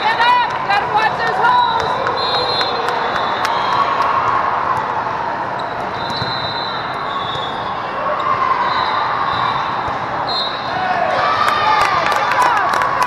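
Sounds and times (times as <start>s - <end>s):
crowd chatter: 0.0s - 13.0s
volleyball contacts: 1.8s - 8.7s
shoe squeaks on court floor: 5.5s - 10.7s.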